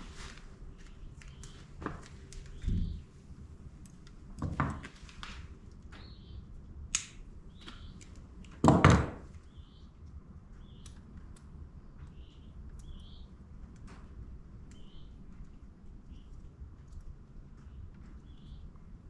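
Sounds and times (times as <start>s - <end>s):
faint bird chirps: 2.4s - 3.1s, 6.0s - 6.5s, 9.4s - 10.0s, 10.6s - 11.0s, 12.0s - 13.4s, 14.7s - 15.2s.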